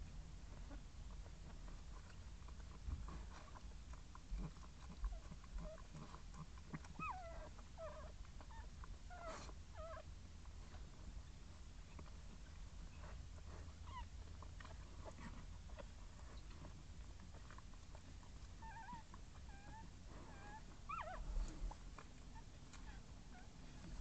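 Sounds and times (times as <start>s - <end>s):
puppies squeaking and whimpering: 6.7s - 10.1s, 18.6s - 23.9s.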